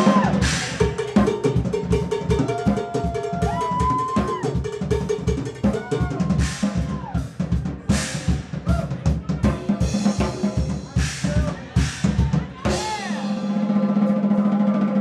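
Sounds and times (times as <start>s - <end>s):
drum kit solo: 0.0s - 15.0s.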